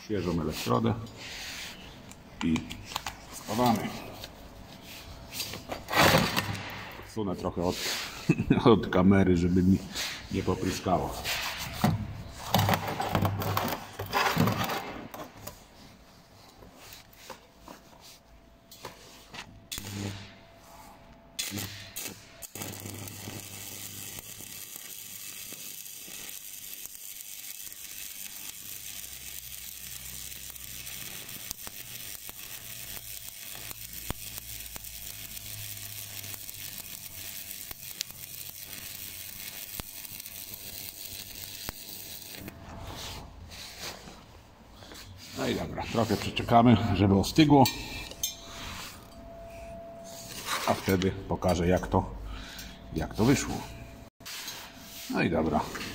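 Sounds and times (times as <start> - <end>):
welding arc crackling and hissing: 19.7 - 44.1
glove and metal handling scrapes: 41.8 - 46.9, 54.2 - 55.9.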